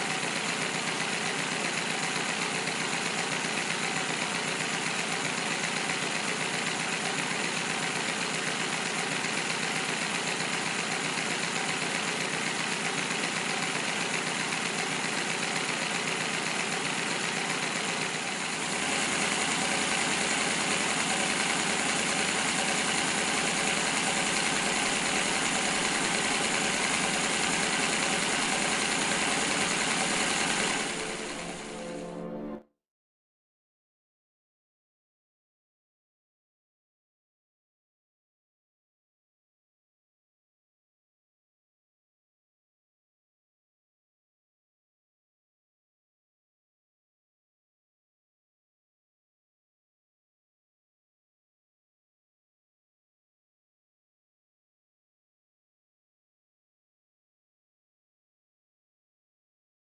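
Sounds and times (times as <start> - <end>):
miniature engine whirring: 0.0 - 31.4.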